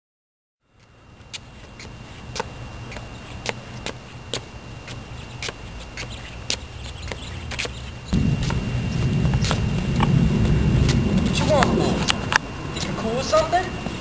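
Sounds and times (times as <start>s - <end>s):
low microphone rumble: 8.1s - 14.0s.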